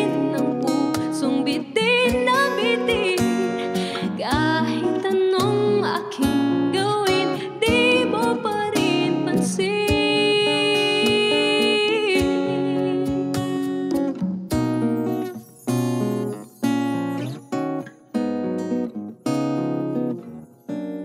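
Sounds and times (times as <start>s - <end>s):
woman singing a slow ballad: 0.0s - 13.8s
strummed acoustic guitar: 0.0s - 21.0s.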